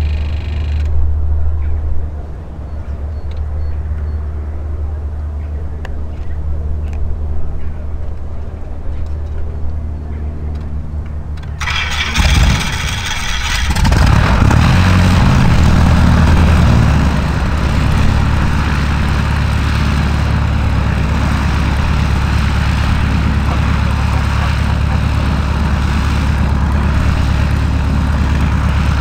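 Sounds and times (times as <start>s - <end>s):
aircraft piston engine running: 9.4s - 29.0s.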